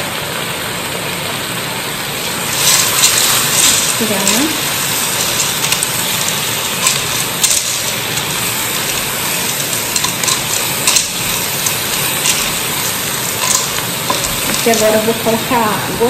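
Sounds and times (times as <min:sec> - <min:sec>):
food sizzling in pot: 0:01.8 - 0:16.0
dry pasta and spoon clicking: 0:02.5 - 0:15.1.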